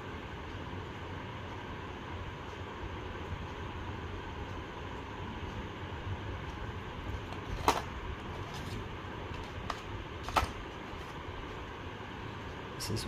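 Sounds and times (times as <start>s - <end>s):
steady background hum: 0.0s - 13.0s
plastic pieces knocking on cardboard: 7.3s - 8.8s, 9.4s - 11.1s.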